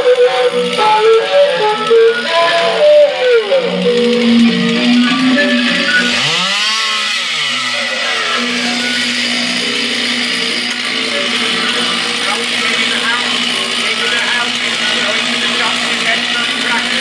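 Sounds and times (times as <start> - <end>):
improvised music with low note: 0.0 - 6.7
chainsaw revving: 0.0 - 17.0.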